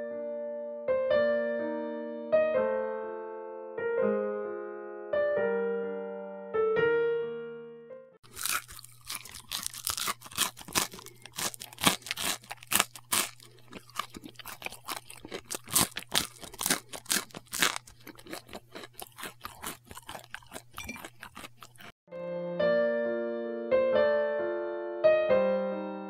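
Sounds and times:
plastic packaging crinkling: 8.2s - 18.4s.

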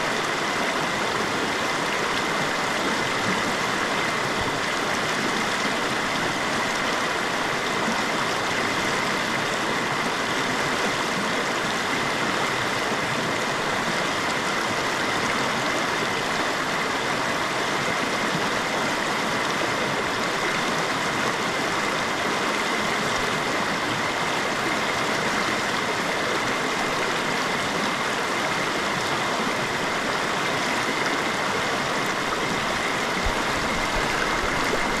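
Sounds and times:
river rushing over stones: 0.0s - 35.0s.

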